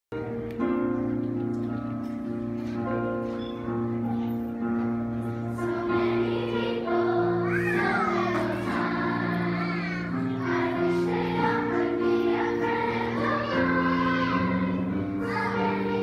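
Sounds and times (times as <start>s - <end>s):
instrumental accompaniment: 0.1s - 16.0s
children's choir singing: 3.2s - 16.0s.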